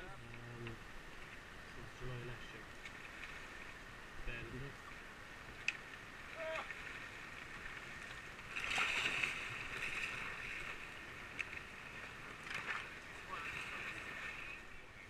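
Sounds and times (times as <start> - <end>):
river current rushing: 0.8 - 15.0
kayak paddle strokes splashing: 2.6 - 4.2, 4.8 - 15.0.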